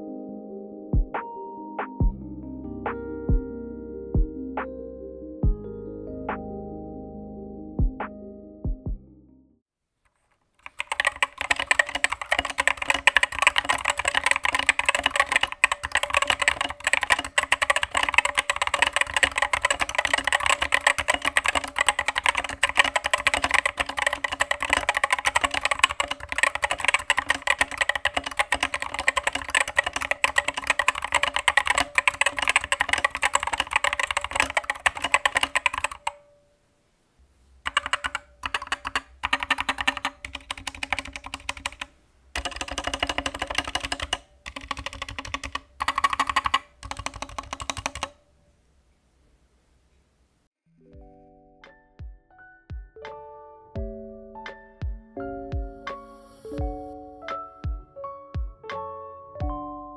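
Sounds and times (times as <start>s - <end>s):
hollow keyboard typing: 10.1s - 36.4s, 37.6s - 48.2s.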